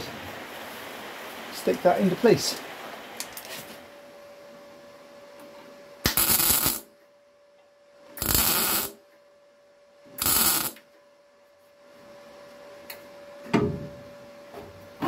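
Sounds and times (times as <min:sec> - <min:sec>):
faint welder hum: 0:00.0 - 0:15.0
welding arc bursts: 0:06.0 - 0:06.9, 0:08.2 - 0:09.0, 0:10.2 - 0:10.8.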